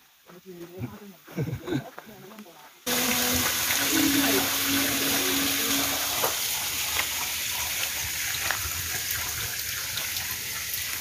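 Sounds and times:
small waterfall: 2.8 - 11.0
spring water running: 2.9 - 11.0
water pouring onto rock: 2.9 - 11.0.

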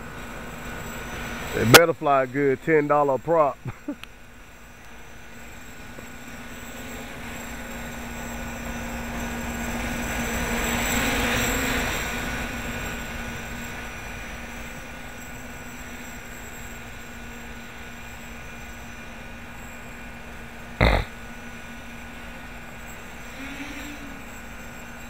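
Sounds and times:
quadcopter propellers humming: 0.0 - 25.0.

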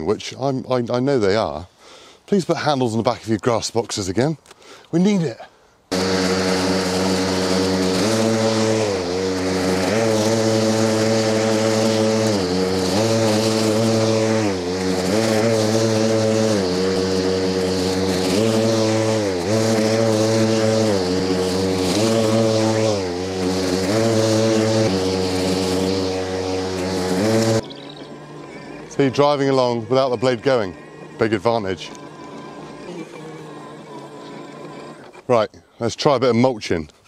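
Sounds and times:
lawn mower motor whining: 5.9 - 35.5.

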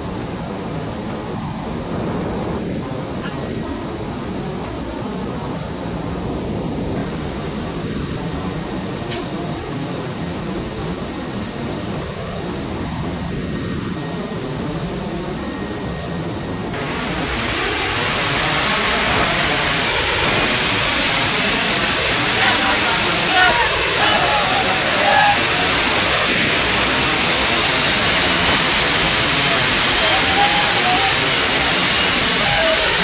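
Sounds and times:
aircraft cabin engine drone: 0.0 - 33.0
rushing hiss of air: 16.7 - 33.0.

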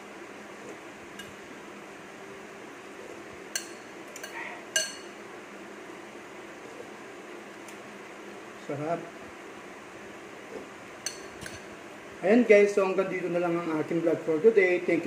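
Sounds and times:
faint hum: 0.0 - 15.0
metal spoon clinking against dish: 3.5 - 5.1, 11.0 - 11.7.

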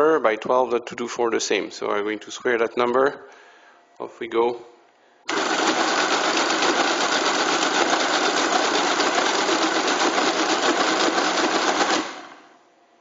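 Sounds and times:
mechanical calculator clattering: 5.3 - 12.5.

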